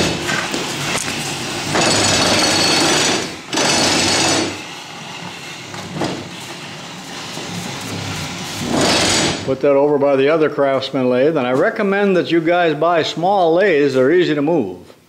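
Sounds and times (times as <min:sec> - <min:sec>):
stand scraping across concrete floor: 0:04.9 - 0:09.5.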